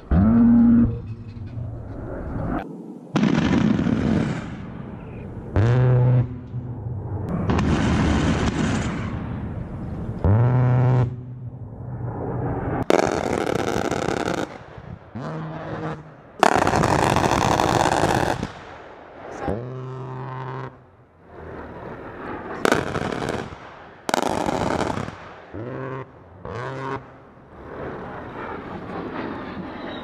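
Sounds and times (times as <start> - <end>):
rotary cannon firing: 3.2 - 4.8, 7.3 - 9.5, 12.8 - 15.0, 16.4 - 18.8, 22.6 - 25.6.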